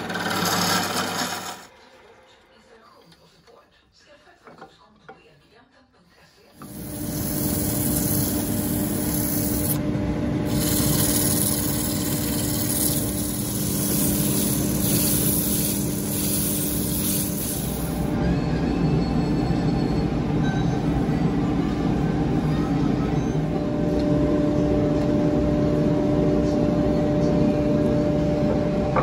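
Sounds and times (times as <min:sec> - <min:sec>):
lathe motor hum: 0:00.0 - 0:01.7, 0:06.6 - 0:18.1
sanding hiss on spinning wood: 0:06.6 - 0:09.8, 0:10.5 - 0:18.1.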